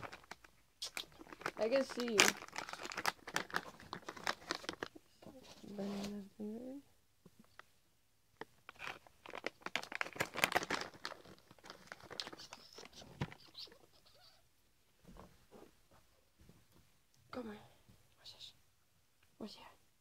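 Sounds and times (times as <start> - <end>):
plastic pouch crinkling: 0.0 - 5.0, 8.7 - 13.7.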